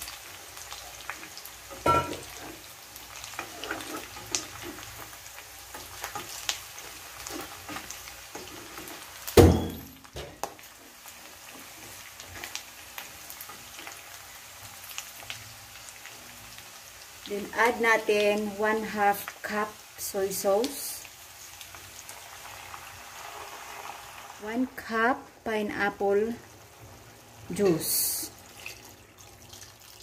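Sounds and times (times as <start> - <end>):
pork frying and sizzling: 0.0 - 30.0
spatula scraping a pot: 3.2 - 5.0.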